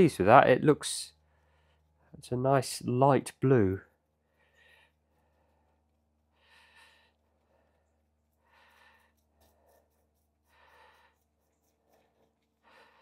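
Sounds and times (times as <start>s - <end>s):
faint soft breaths: 1.1s - 2.2s, 3.8s - 13.0s.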